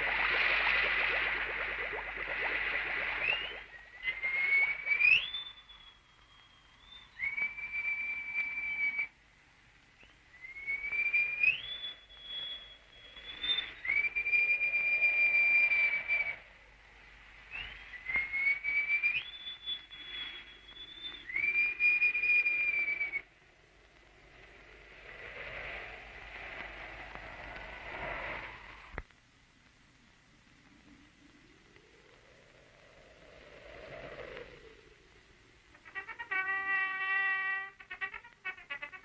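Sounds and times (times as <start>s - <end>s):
person whistling a tune: 3.2s - 9.1s, 10.0s - 16.3s.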